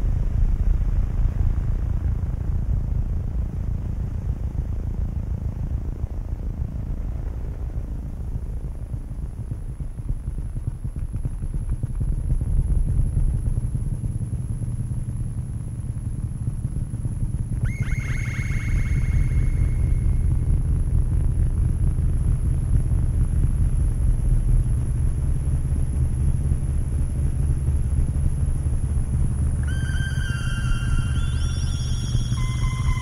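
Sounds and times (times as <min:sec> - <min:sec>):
faint high whine: 0:12.6 - 0:33.0
deep throbbing drone: 0:17.4 - 0:33.0.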